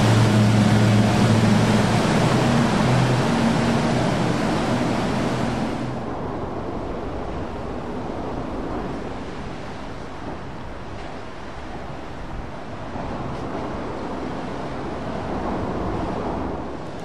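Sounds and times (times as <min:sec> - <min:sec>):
motorboat engine running: 0:00.0 - 0:06.0
rush of spray: 0:00.0 - 0:06.6
churning wake water: 0:00.0 - 0:17.0.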